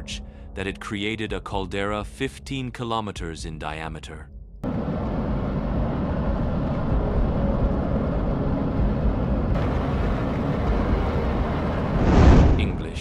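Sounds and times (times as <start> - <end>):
volcano rumbling: 4.6 - 13.0.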